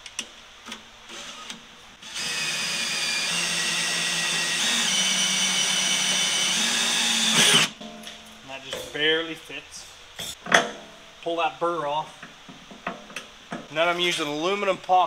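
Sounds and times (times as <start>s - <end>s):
electric drill boring through metal: 1.1s - 7.7s.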